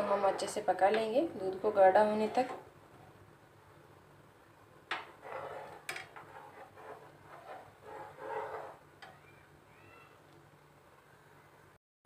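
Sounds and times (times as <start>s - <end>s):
low steady hum: 0.0s - 11.8s
ladle stirring boiling milk: 5.0s - 9.4s.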